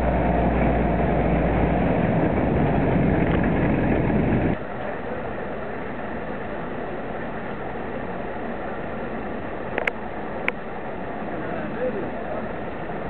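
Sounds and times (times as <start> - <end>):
jeep engine running on rails: 0.0 - 13.0.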